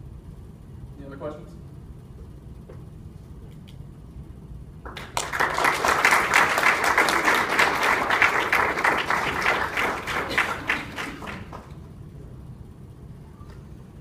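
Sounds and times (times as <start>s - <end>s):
audience applauding: 4.9s - 11.8s.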